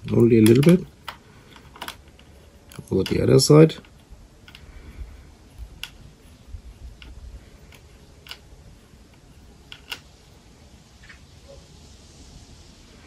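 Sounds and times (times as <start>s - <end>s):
allen key clicking on screws: 0.0s - 4.8s, 5.6s - 10.2s.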